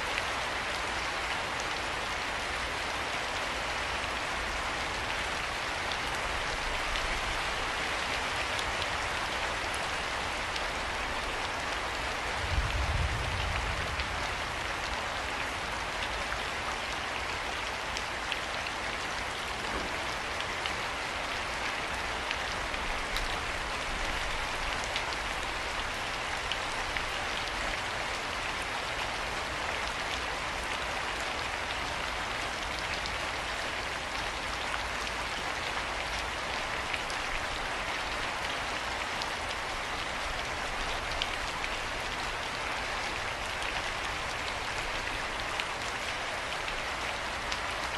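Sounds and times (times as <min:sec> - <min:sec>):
steady rain falling: 0:00.0 - 0:47.9.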